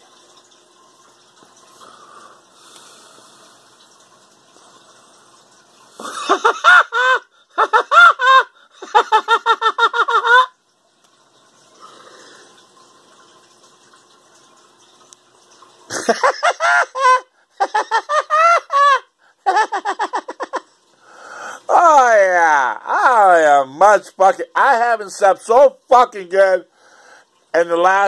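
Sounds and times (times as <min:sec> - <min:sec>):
high-pitched squealing laugh: 0:06.0 - 0:10.6, 0:15.9 - 0:20.7.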